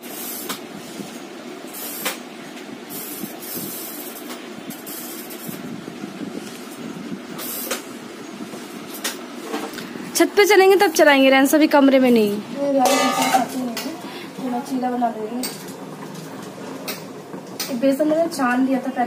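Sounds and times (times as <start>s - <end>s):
steady hiss: 0.0s - 11.3s.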